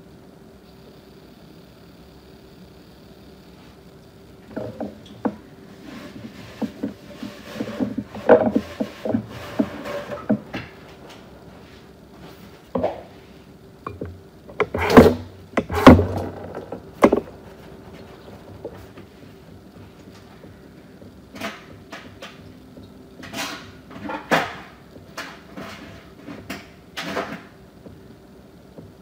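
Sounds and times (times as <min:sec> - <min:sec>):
faint steady hum: 0:00.0 - 0:29.0
objects knocking and clattering: 0:04.4 - 0:11.2, 0:12.7 - 0:13.2, 0:13.8 - 0:19.2.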